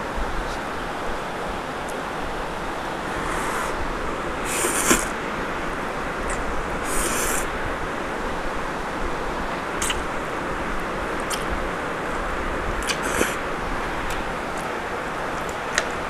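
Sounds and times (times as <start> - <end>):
background hiss: 0.0 - 16.0
person slurping noodles: 3.0 - 5.2, 6.3 - 7.5, 9.8 - 10.0, 12.8 - 13.4.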